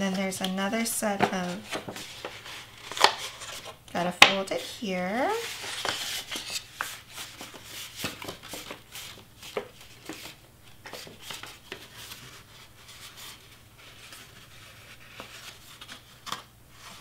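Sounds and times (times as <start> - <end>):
cardstock rustling and crackling: 0.2 - 17.0.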